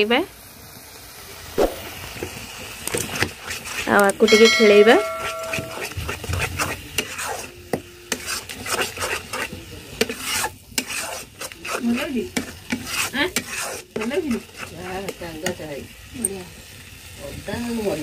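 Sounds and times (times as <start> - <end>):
spices sizzling in oil: 0.0 - 18.0
metal spatula scraping pan: 3.0 - 7.5, 8.1 - 15.2.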